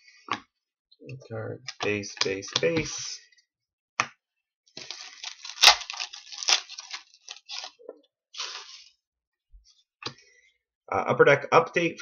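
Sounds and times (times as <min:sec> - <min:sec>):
cards sliding and scraping: 0:08.4 - 0:09.0.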